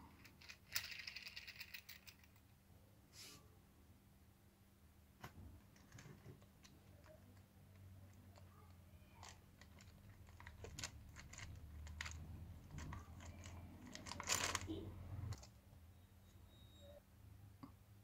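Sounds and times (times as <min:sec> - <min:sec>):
plastic toy parts clicking on concrete: 0:00.2 - 0:02.5, 0:06.6 - 0:14.7.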